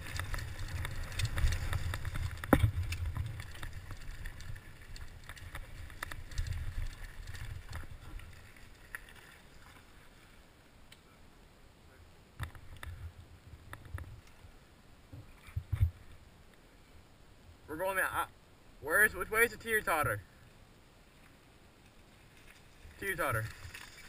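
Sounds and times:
bike tyres rumbling over rocks: 0.0 - 9.2.

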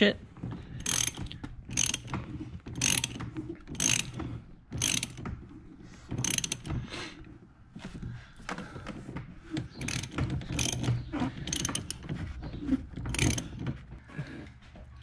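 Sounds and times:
socket ratchet clicking: 0.8 - 2.2, 2.8 - 4.2, 4.8 - 5.3, 6.2 - 6.8, 9.6 - 12.0, 13.1 - 13.6.

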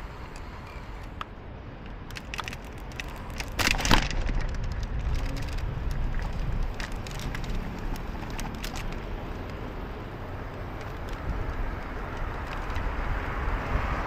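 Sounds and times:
traffic rumble: 0.0 - 14.0
small clicks: 10.5 - 12.9.

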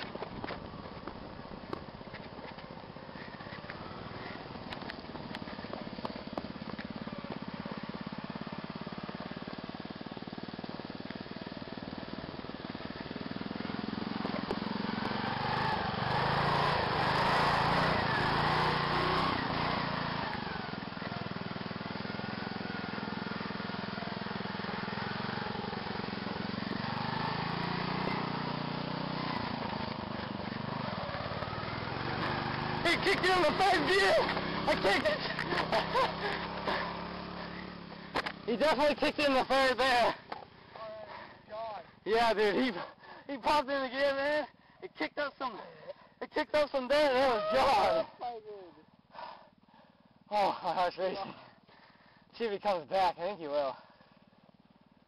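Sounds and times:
lawn mower engine running hard: 3.0 - 40.7.

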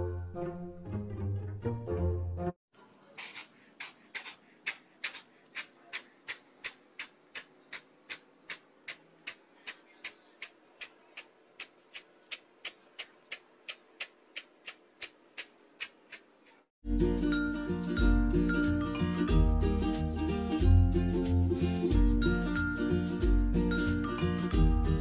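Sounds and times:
kitten hissing: 3.1 - 6.4.

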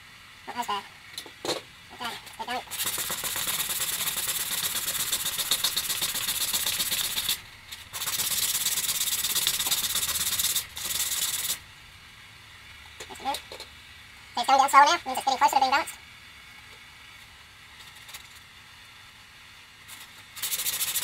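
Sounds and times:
plastic rasping on sandpaper: 2.6 - 11.6, 19.9 - 21.0.

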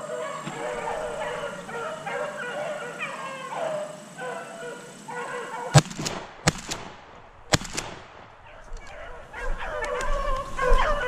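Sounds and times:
dogs baying and howling: 0.0 - 5.8, 8.4 - 11.0
shotgun firing: 5.8 - 9.0
faint sharp cracks: 5.8 - 9.1.

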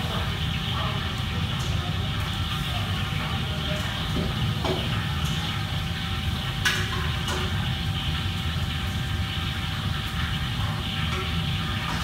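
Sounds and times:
kitchen machinery hum: 0.0 - 12.0.

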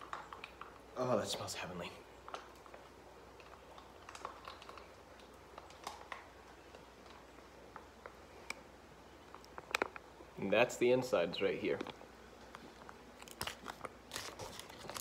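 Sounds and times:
foil pouch crinkling and clicking: 2.2 - 8.1, 12.8 - 15.0.

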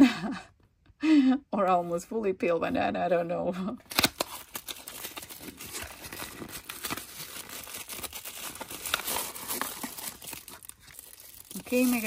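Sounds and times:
plastic packaging crinkling: 3.9 - 12.0.

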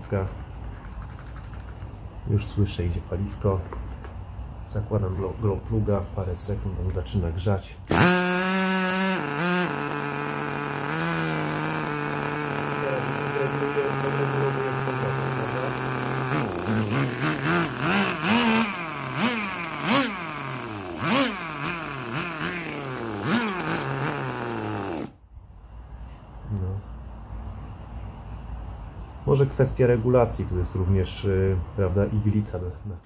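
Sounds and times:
model car engine revving: 7.9 - 25.2.

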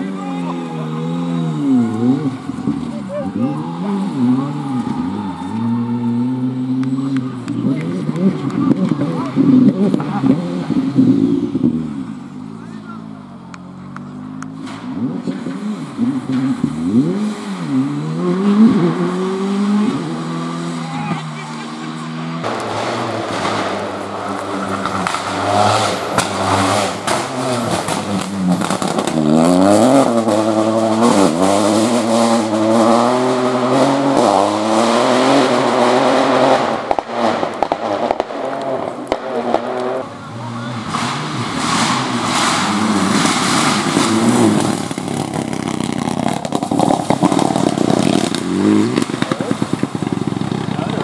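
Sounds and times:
rally car engines revving: 0.0 - 51.0
gravel spraying: 21.4 - 32.8, 35.8 - 51.0.

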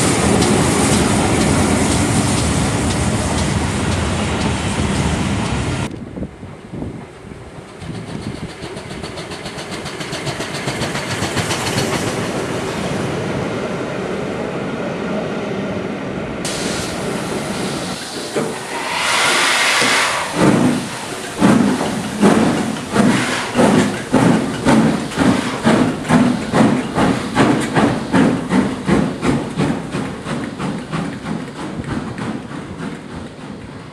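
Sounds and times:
steam hiss: 0.0 - 5.8, 16.4 - 33.9
steam locomotive exhaust chuffs: 0.0 - 5.8, 7.7 - 12.4, 16.5 - 33.9
train rumbling past: 0.0 - 33.9.

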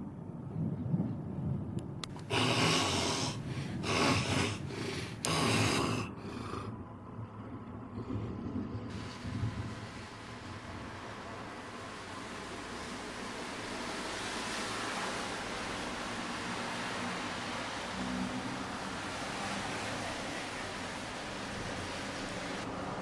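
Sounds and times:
man snoring: 2.2 - 6.7
low breathing: 2.2 - 7.0.

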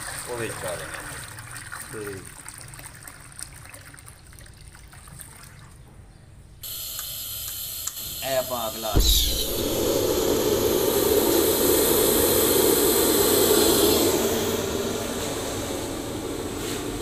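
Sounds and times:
gas burner lighting whoosh: 6.6 - 17.0
roaring flame: 9.0 - 17.0.

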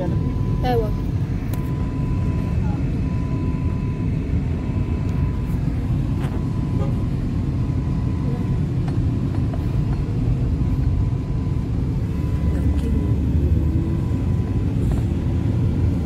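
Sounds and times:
faint thin whine: 0.0 - 16.0
car cabin road rumble: 4.8 - 16.0.

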